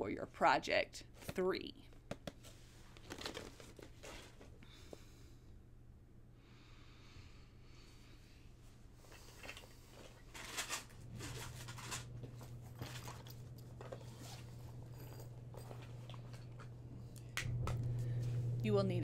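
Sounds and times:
low steady hum: 0:00.0 - 0:19.0
packaging rustling and clicking: 0:02.3 - 0:04.5, 0:09.4 - 0:15.2.

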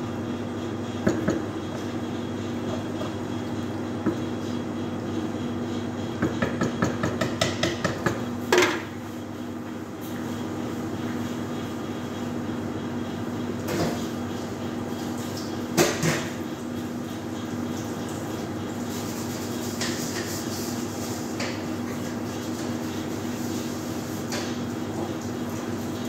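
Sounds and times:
kitchen equipment humming: 0:00.0 - 0:26.0.

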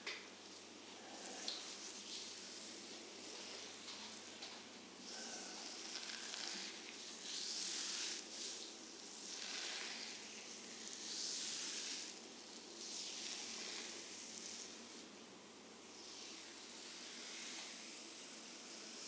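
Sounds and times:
hands sliding over skin: 0:05.9 - 0:12.1.

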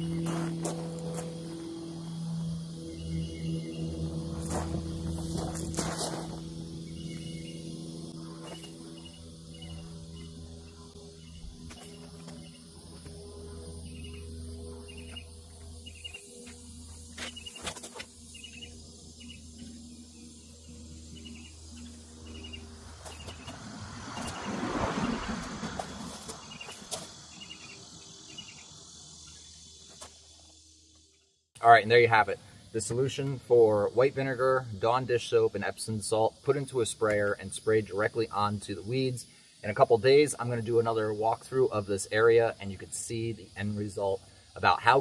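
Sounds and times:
insects chirping: 0:00.0 - 0:45.0
steady low hum: 0:00.0 - 0:45.0
brushing past hedge: 0:22.9 - 0:27.3.

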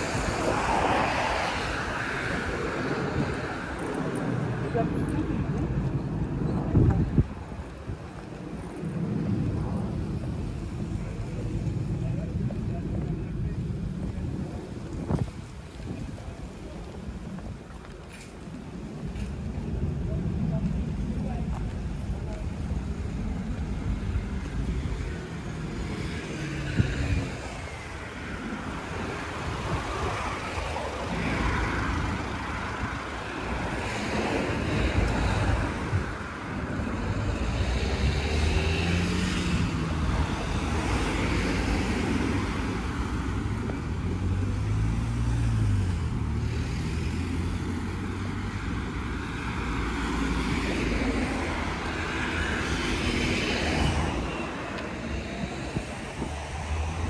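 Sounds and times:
steady traffic hum: 0:00.0 - 0:57.0
cars driving past: 0:21.8 - 0:57.0.

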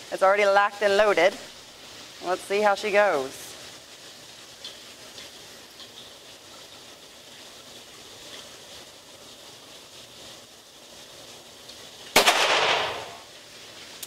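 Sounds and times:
faint steady hiss: 0:00.0 - 0:14.0
pistol shot with reverberation: 0:12.2 - 0:13.2.

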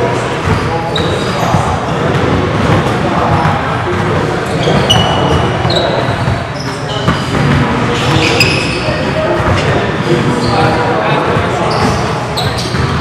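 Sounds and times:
sneaker squeaks: 0:00.1 - 0:13.0
basketballs bouncing on hardwood: 0:00.4 - 0:09.9, 0:10.5 - 0:13.0.

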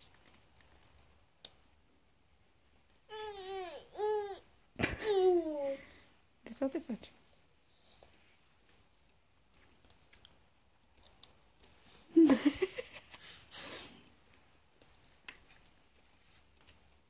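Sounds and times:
baby squealing and laughing: 0:03.1 - 0:04.4.

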